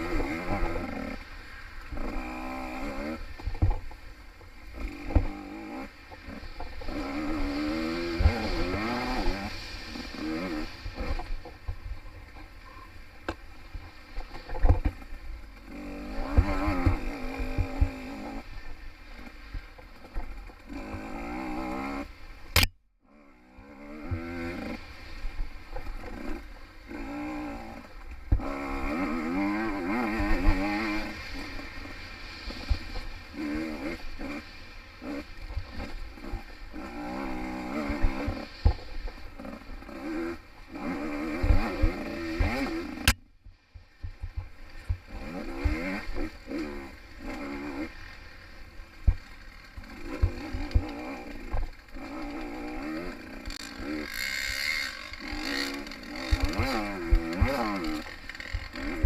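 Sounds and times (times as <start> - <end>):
two-stroke motorcycle revving: 0.0 - 59.0
motorcycle thumping over bumps: 3.4 - 4.0, 16.2 - 17.9, 53.0 - 59.0
sharp click: 22.5 - 22.8.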